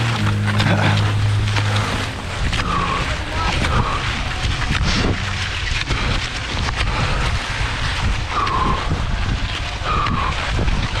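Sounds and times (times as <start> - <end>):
skis and poles scraping snow: 0.0 - 11.0
wind buffeting microphone: 0.0 - 11.0.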